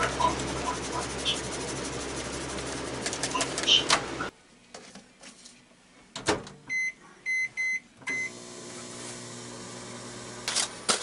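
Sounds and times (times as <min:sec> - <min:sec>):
microwave oven humming: 0:00.0 - 0:04.3, 0:08.0 - 0:11.0
microwave keypad beeping: 0:06.7 - 0:08.4.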